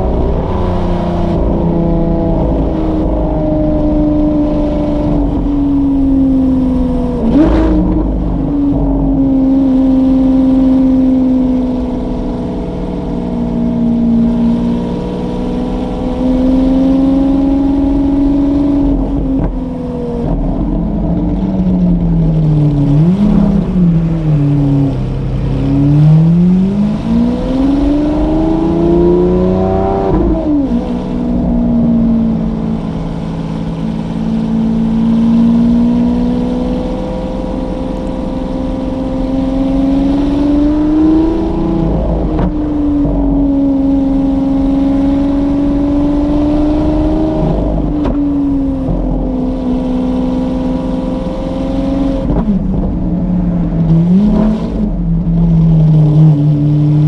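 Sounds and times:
loud car engine revving: 0.0s - 57.0s.

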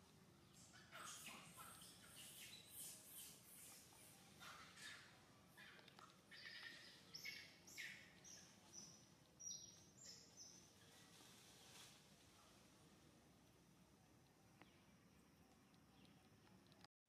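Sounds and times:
high-pitched animal chirps: 0.7s - 7.9s.

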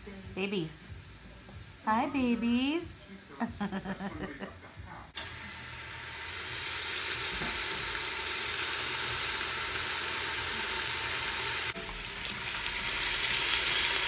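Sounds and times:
meat sizzling in hot oil: 5.2s - 14.0s.

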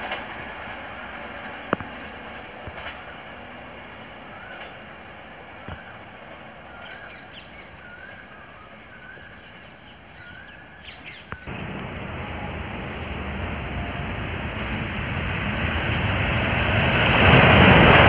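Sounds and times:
birds chirping: 0.0s - 17.1s
diesel train rumbling: 0.0s - 18.0s.

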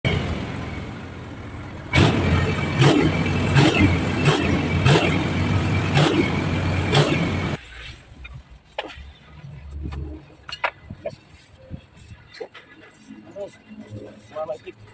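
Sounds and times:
diesel truck engine revving: 0.1s - 7.6s.

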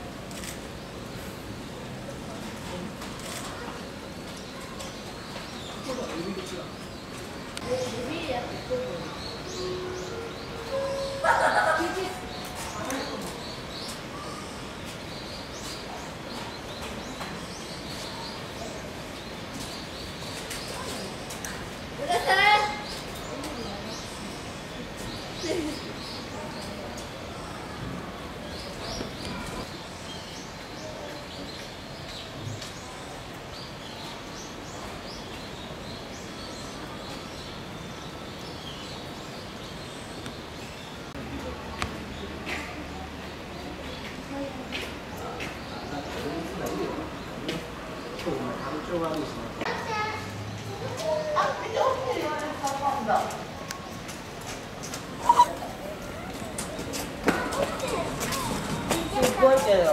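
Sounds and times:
outdoor background hiss: 0.0s - 59.9s
small birds chirping: 0.0s - 59.9s
small bird chirping: 55.2s - 55.9s.

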